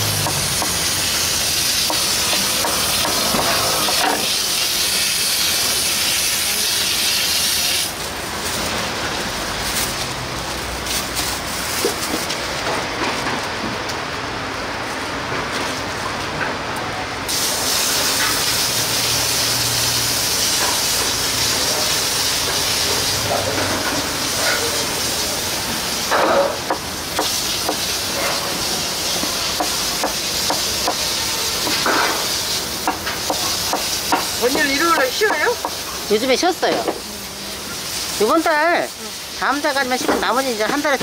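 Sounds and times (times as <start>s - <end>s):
food sizzling in hot oil: 0.0s - 12.3s, 17.3s - 41.0s.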